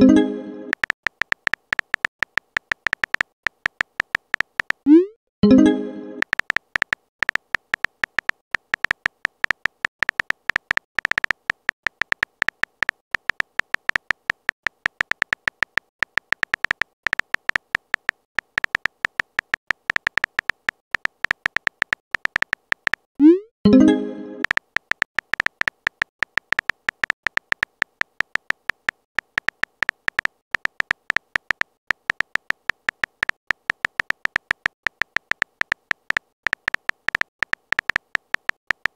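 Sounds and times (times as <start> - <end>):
message sent sound: 0.0 - 0.9, 4.9 - 6.4, 23.2 - 24.6
phone keyboard clicking: 0.7 - 4.9, 6.2 - 23.1, 24.4 - 38.9.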